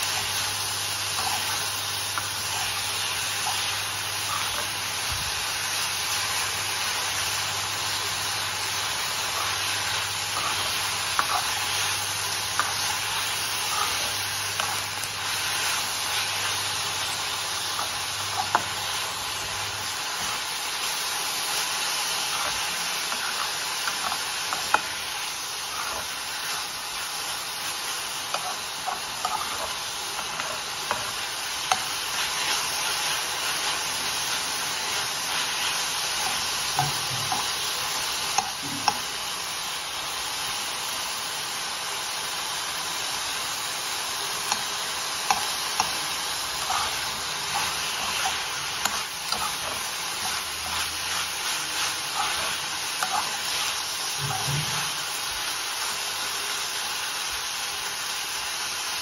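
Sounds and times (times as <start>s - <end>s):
greens sizzling in a pan: 0.0s - 59.0s
metal spatula scraping a pan: 45.3s - 55.0s.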